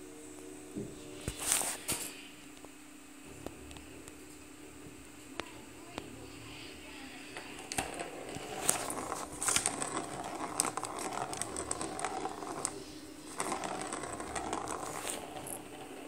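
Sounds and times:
ball rattling in plastic track: 7.3s - 16.0s.

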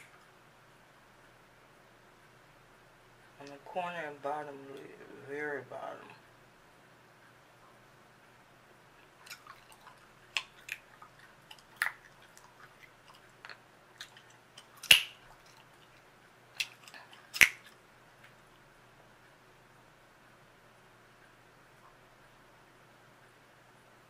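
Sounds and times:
gum snapping: 9.2s - 15.7s, 16.6s - 17.8s
chewing gum wet smacks: 9.2s - 16.0s, 16.6s - 17.8s.

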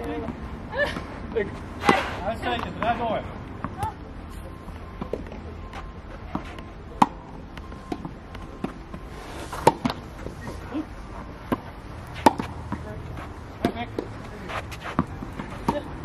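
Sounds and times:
tennis balls bouncing: 0.0s - 4.1s, 4.7s - 10.7s, 11.3s - 16.0s
tennis racket hitting ball: 1.8s - 3.0s, 6.3s - 10.0s, 11.5s - 13.0s, 13.6s - 16.0s.

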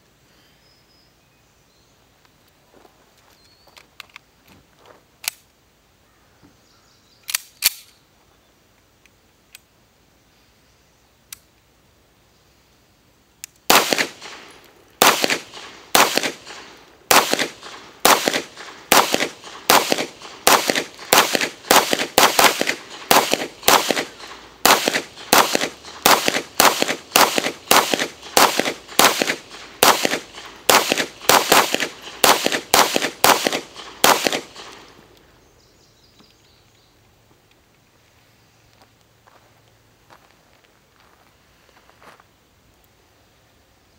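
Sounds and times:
sharp clicks: 7.2s - 8.0s, 13.4s - 35.3s
pistol shots with echo: 13.7s - 34.9s.

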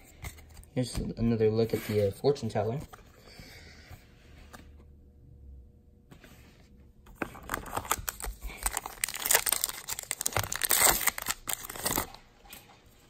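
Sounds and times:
foil wrapper tearing and crinkling: 7.5s - 12.2s.

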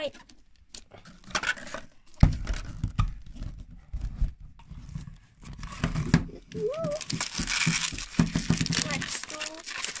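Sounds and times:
plastic ball twisted open: 0.1s - 3.7s, 4.6s - 10.0s
plastic clicks and rustling: 5.5s - 10.0s.

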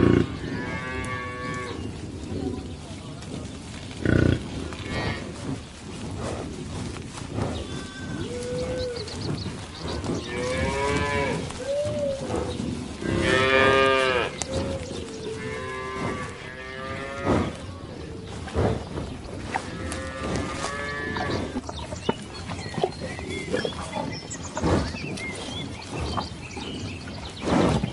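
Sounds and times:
cattle mooing: 10.2s - 11.8s, 13.0s - 17.6s.

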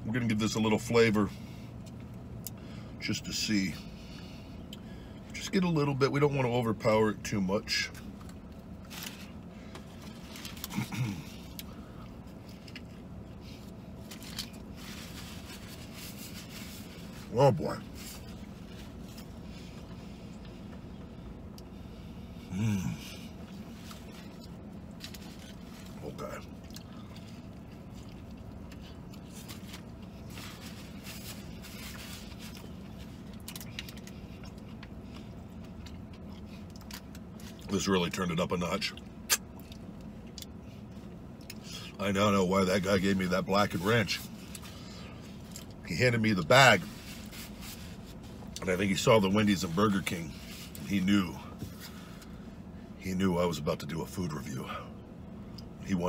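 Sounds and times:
steady low hum: 0.0s - 56.0s
man chewing food: 17.9s - 37.7s.

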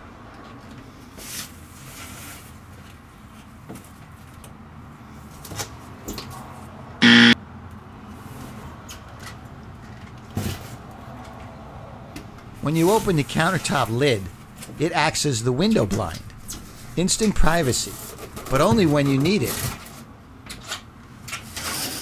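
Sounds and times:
buzzer-like tone: 7.0s - 7.4s.

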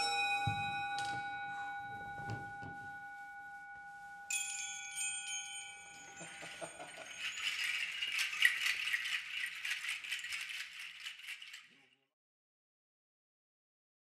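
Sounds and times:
chime-like tones ringing: 0.0s - 9.6s
hand shaker rattling: 3.9s - 12.0s.

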